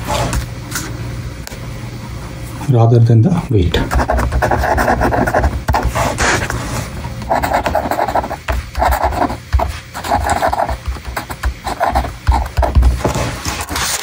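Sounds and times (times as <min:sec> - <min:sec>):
ballpoint pen scratching on paper: 0:03.8 - 0:06.6, 0:07.3 - 0:14.0.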